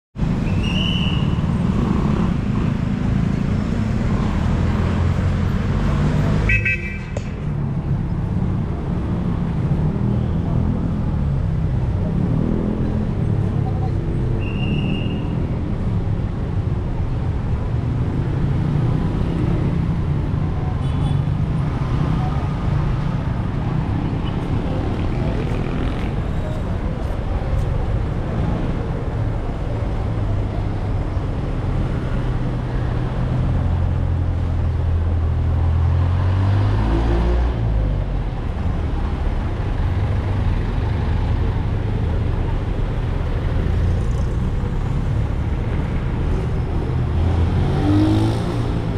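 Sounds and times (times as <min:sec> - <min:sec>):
traffic rumble: 0:00.2 - 0:48.9.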